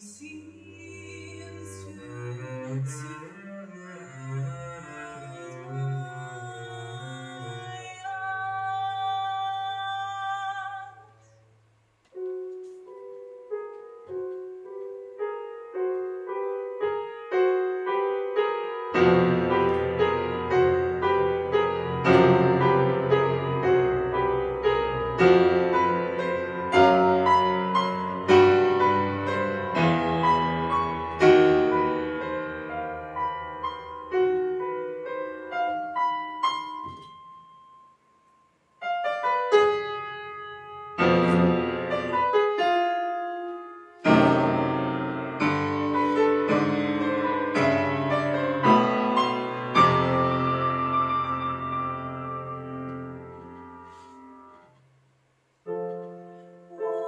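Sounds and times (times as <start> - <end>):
woman singing with vibrato: 0.0 - 3.4, 5.4 - 11.3, 56.7 - 57.0
grand piano playing: 12.2 - 37.8, 38.8 - 54.7.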